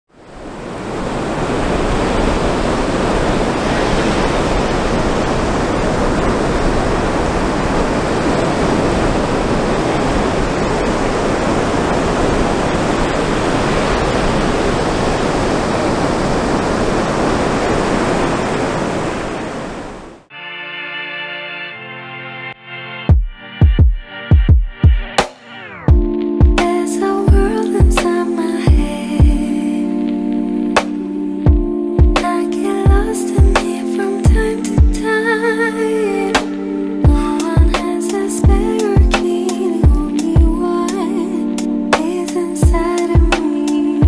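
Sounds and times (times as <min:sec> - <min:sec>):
ocean waves breaking: 0:00.1 - 0:20.3, 0:25.7 - 0:44.0.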